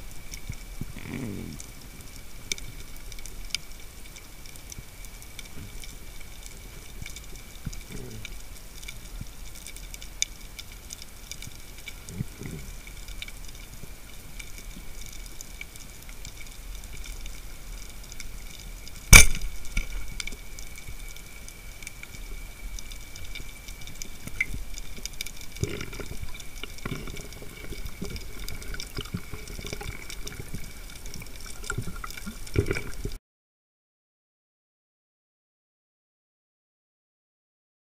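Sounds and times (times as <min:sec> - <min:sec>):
underwater crackle and hiss: 0:00.0 - 0:33.2
water movement rustling: 0:00.0 - 0:33.2
speargun firing snap: 0:19.1 - 0:19.5.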